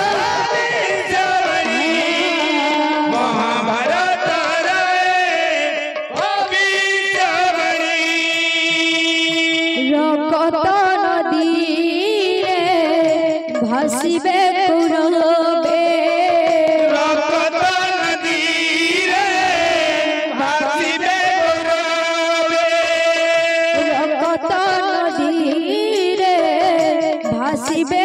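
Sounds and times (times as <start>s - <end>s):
hand-beaten barrel drums: 0.0s - 10.9s, 12.0s - 28.0s.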